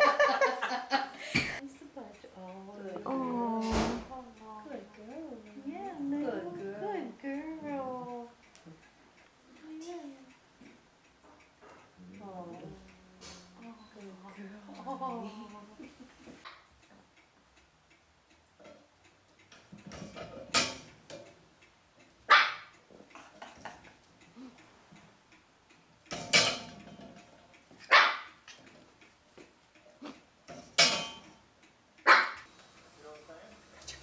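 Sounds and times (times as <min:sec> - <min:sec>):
puppy barking: 0:22.3 - 0:22.7, 0:27.9 - 0:28.3, 0:32.0 - 0:32.5.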